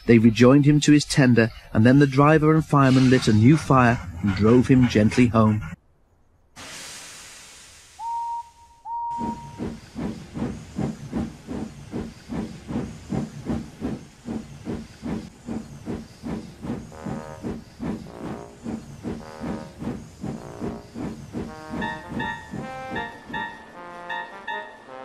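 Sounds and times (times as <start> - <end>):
locomotive chuffing: 2.6 - 5.5, 8.9 - 25.0
steam hissing: 6.6 - 8.5, 9.1 - 23.6
steam whistle toots: 7.9 - 9.6.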